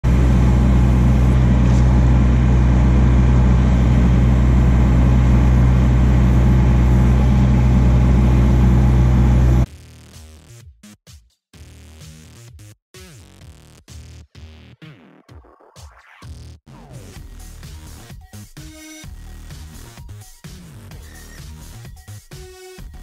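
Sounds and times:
excavator diesel engine running: 0:00.0 - 0:09.7.

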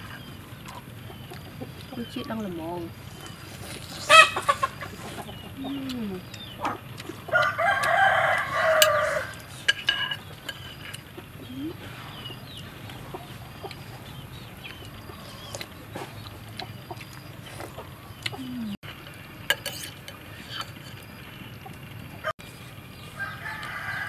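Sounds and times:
soft chicken calls: 0:03.2 - 0:09.5
rooster crowing: 0:07.3 - 0:09.5, 0:23.1 - 0:24.0.

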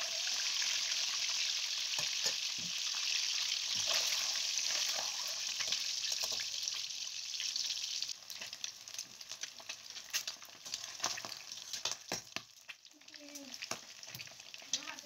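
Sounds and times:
eggs sizzling in hot oil: 0:00.0 - 0:15.0.

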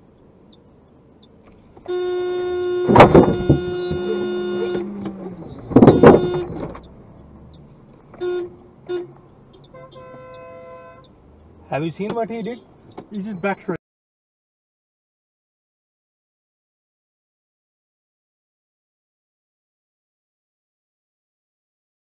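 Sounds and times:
car horn honking: 0:01.8 - 0:06.9, 0:08.1 - 0:11.2
higher-pitched horn: 0:01.9 - 0:05.0, 0:05.8 - 0:06.6.

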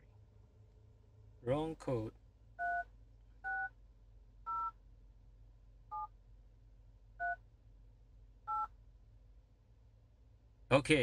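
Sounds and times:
two-tone keypad beeps: 0:08.5 - 0:08.7.

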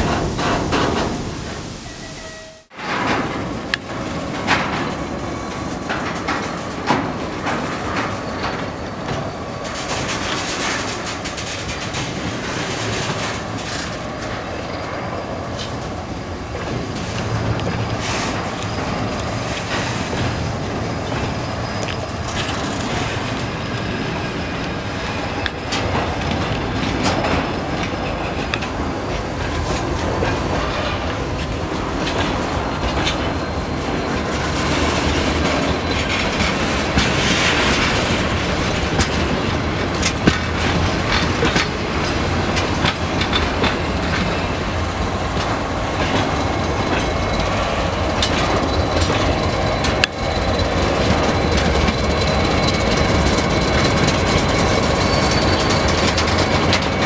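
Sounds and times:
wheels clacking over rail joints: 0:02.8 - 0:57.0
faint wheel squeal: 0:54.8 - 0:56.2.

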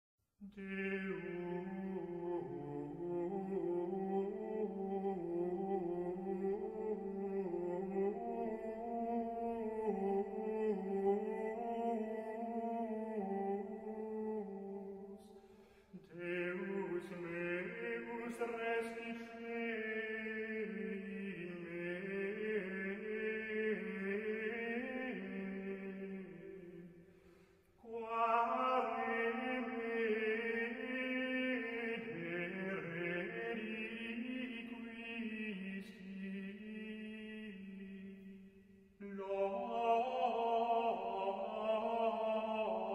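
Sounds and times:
chant sung in long held notes: 0:00.5 - 0:15.3, 0:27.8 - 0:38.1, 0:39.0 - 0:42.9
voices singing a slow hymn: 0:00.6 - 0:26.4, 0:39.0 - 0:42.9.

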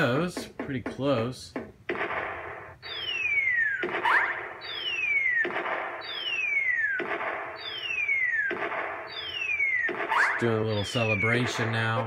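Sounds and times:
slot machine falling whistle tone: 0:02.9 - 0:05.4, 0:06.0 - 0:07.0, 0:07.6 - 0:08.5, 0:09.1 - 0:11.8.

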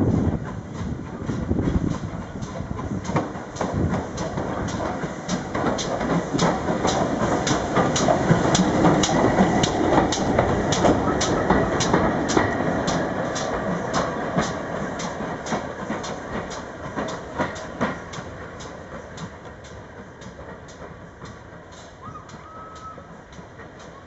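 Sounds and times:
steam locomotive rhythmic beat: 0:00.0 - 0:24.0.

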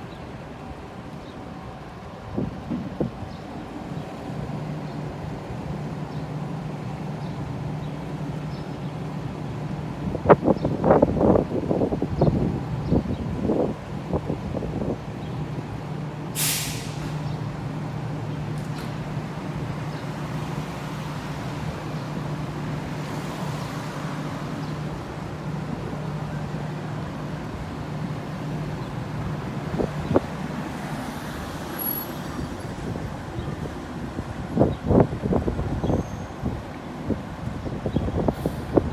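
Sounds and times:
air brake hiss: 0:16.4 - 0:17.2, 0:38.3 - 0:38.8.

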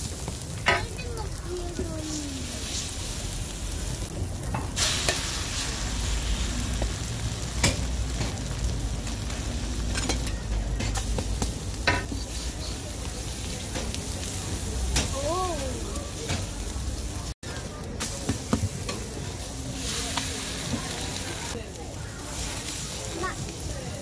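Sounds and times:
batter sizzling on griddle: 0:00.0 - 0:24.0
ladle clicking on griddle: 0:00.1 - 0:03.2, 0:06.7 - 0:16.8, 0:17.6 - 0:21.5.

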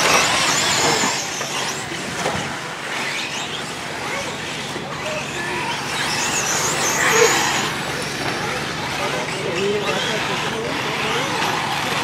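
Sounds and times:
electric motors whining: 0:00.0 - 0:12.0.

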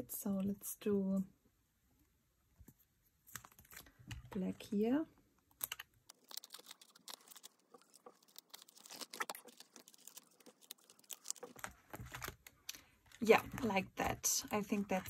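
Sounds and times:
plastic pages crinkling: 0:05.6 - 0:15.0.

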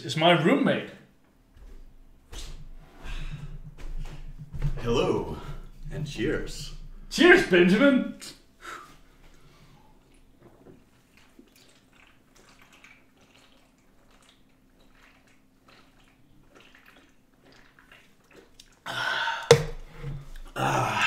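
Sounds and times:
gulping and swallowing: 0:11.0 - 0:20.8.

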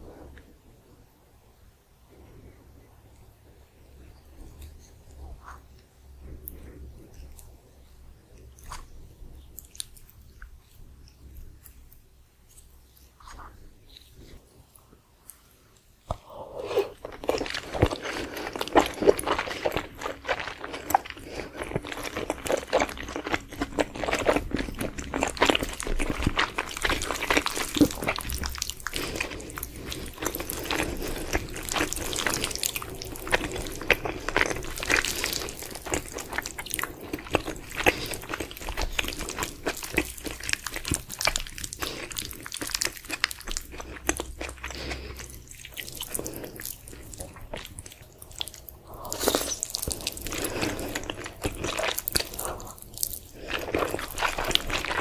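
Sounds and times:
person chewing food: 0:04.0 - 0:55.0.

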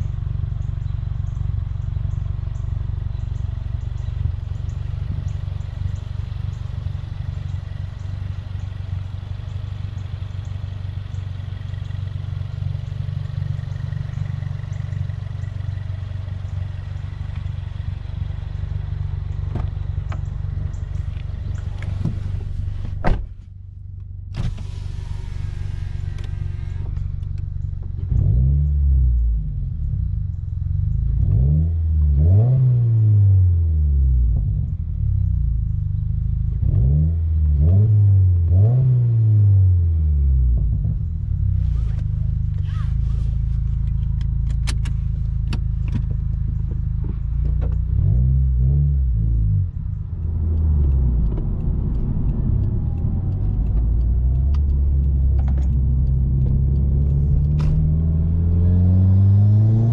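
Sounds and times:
car engine idling: 0:00.0 - 0:31.5, 0:33.6 - 0:36.7, 0:39.9 - 0:59.9
car door shutting: 0:21.5 - 0:23.5, 0:24.3 - 0:27.1, 0:57.5 - 0:58.0
engine revving: 0:24.3 - 0:30.0, 0:30.8 - 0:34.2, 0:36.5 - 0:40.9, 0:41.5 - 0:59.9.

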